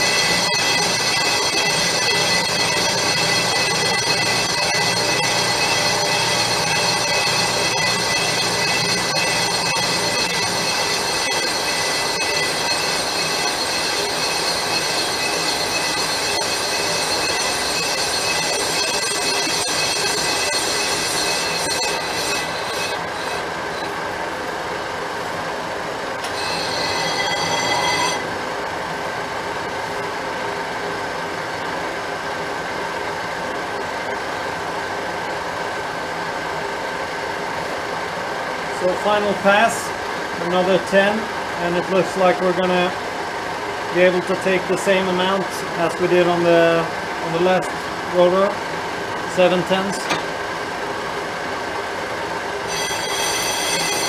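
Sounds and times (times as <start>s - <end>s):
metal lathe screeching: 0.0s - 24.0s, 26.2s - 28.3s, 52.6s - 54.0s
faint high whine: 0.0s - 36.9s, 37.7s - 54.0s.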